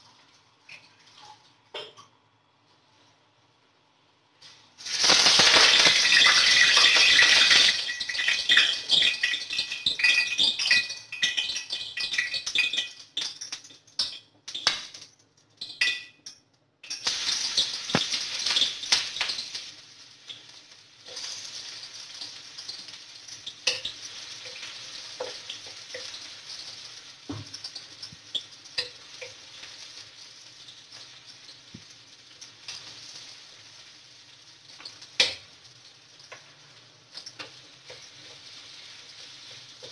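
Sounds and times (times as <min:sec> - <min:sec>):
onion frying in hot oil: 0:00.0 - 0:39.9
wooden spatula scraping and tapping: 0:20.3 - 0:33.4, 0:34.7 - 0:39.9.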